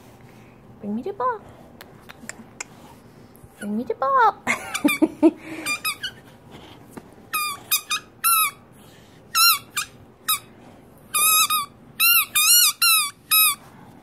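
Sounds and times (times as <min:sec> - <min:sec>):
rubber squeaker ball squeaking: 0:07.3 - 0:08.6, 0:09.3 - 0:10.4, 0:11.1 - 0:13.6.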